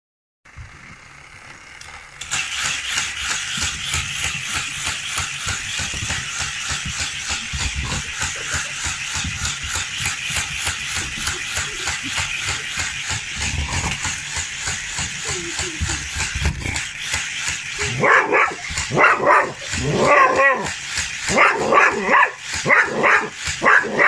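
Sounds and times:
toy car pulsing through wheels: 0.5 - 24.0
toy track booster whirring: 0.5 - 24.0.

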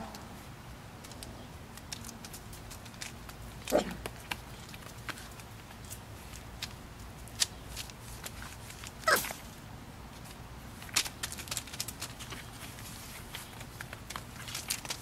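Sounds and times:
puppies clicking and scuffling: 1.0 - 15.0
puppy yelp: 9.0 - 9.4.

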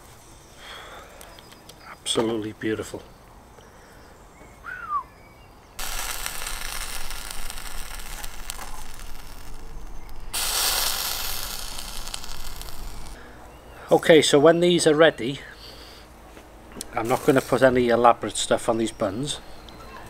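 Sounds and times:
burgers sizzling on a grill: 5.8 - 13.2.

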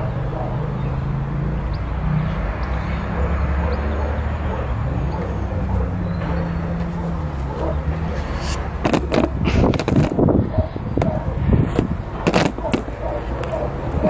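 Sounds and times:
steady low rumble: 5.5 - 12.3.

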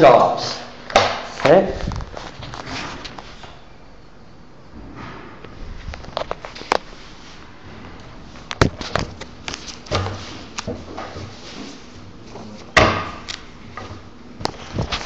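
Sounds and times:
camera thumps: 8.6 - 9.3.

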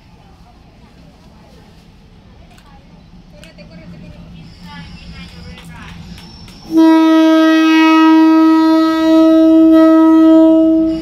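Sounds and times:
train air horn blast: 6.7 - 11.0.

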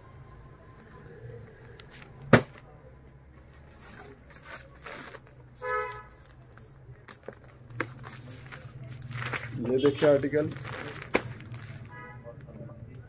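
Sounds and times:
plastic packaging rustling: 3.6 - 13.0.

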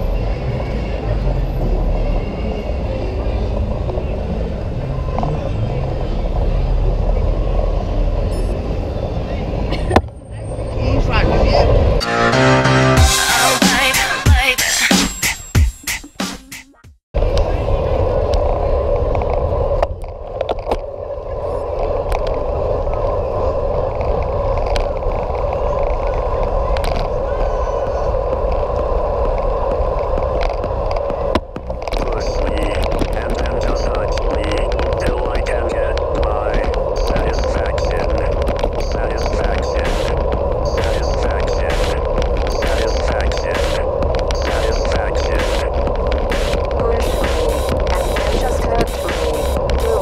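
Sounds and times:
faint street background: 0.0 - 50.0
bicycle riding noise: 17.2 - 50.0
wind rumble: 17.2 - 50.0.

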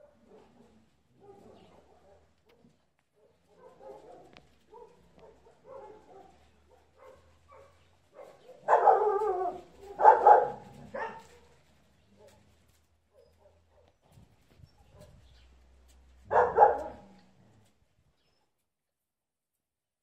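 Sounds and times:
dog barking: 0.0 - 2.6, 3.2 - 11.6, 13.1 - 14.0, 14.8 - 15.3, 16.2 - 17.2
dog grumbles and whines: 8.9 - 11.5.

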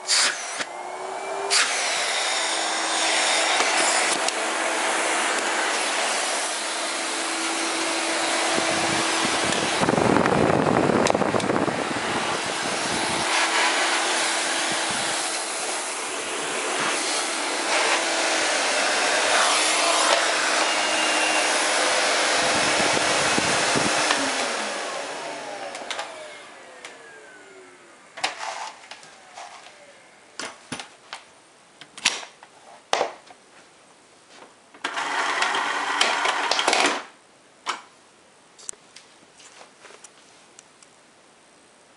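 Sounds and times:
vacuum cleaner humming: 0.0 - 30.3, 34.8 - 36.9
vacuum motor winding down: 0.1 - 28.0.

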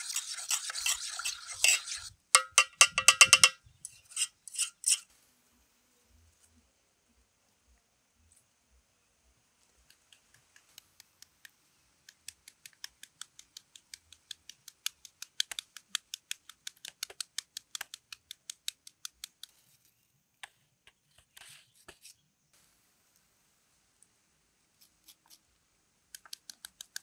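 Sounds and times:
knife scraping slice: 0.0 - 2.2, 2.9 - 5.1
knife cutting onion: 24.8 - 25.4.

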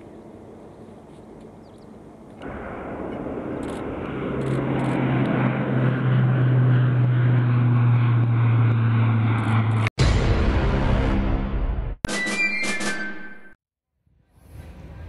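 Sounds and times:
low propeller drone: 0.0 - 11.9
turboprop engines climbing: 2.1 - 11.2.

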